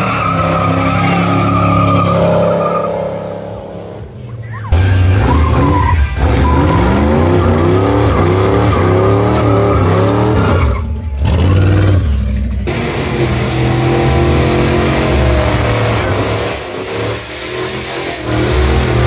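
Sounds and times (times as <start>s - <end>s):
pickup truck engine revving: 4.7s - 19.0s.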